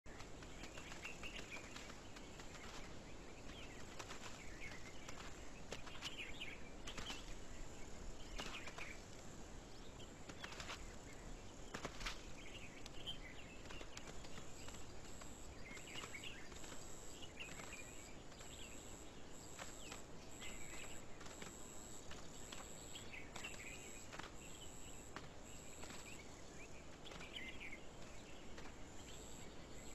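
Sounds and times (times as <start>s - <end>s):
steady hiss: 0.2s - 29.9s
bird chirps: 9.8s - 29.9s.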